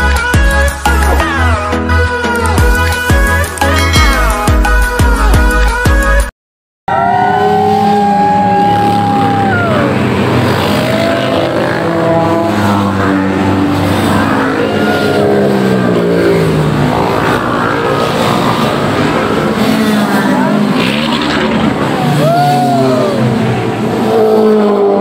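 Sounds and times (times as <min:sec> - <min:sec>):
motorcycles riding past: 0:06.9 - 0:25.0.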